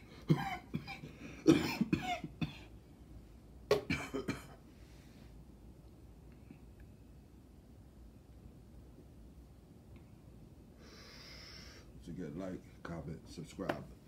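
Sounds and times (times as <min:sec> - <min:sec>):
man coughing: 0:00.2 - 0:02.7, 0:03.8 - 0:04.6.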